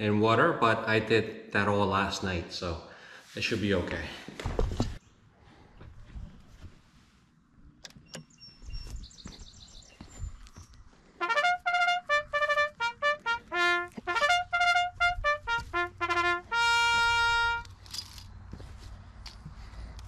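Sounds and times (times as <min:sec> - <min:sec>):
bugle call on trumpet: 0:11.2 - 0:17.7.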